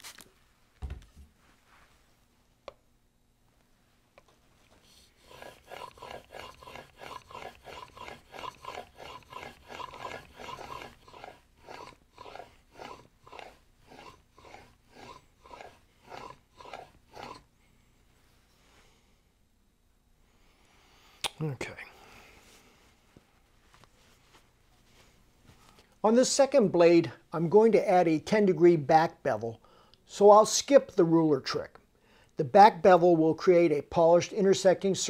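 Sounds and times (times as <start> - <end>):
plane blade scraping on whetstone: 5.2 - 17.4.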